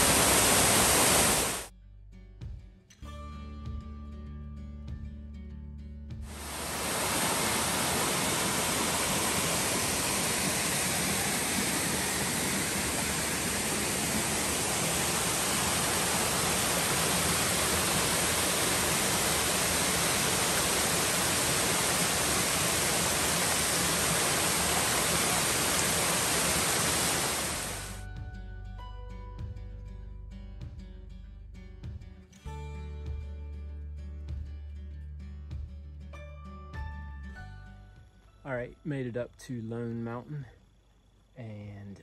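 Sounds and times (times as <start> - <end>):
stream water rushing: 0.0 - 1.7, 6.3 - 28.0.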